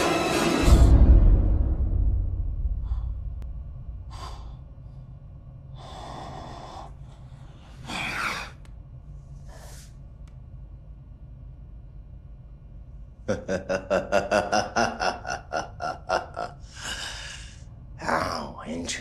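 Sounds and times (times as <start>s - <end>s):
low rumble: 0.0s - 18.6s
man breathing heavily: 2.7s - 3.4s, 4.0s - 8.6s, 16.6s - 17.8s.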